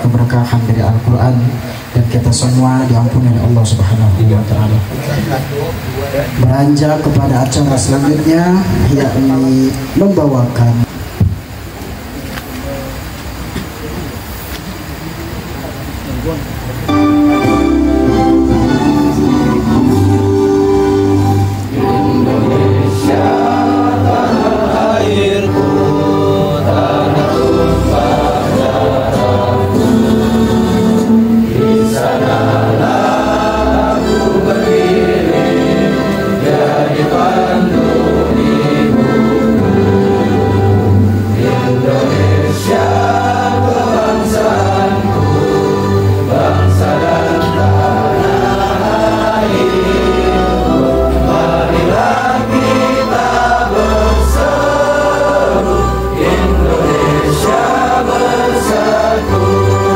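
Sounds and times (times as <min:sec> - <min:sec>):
choir singing: 0:16.9 - 0:59.9
instrumental accompaniment with bass: 0:16.9 - 0:59.9.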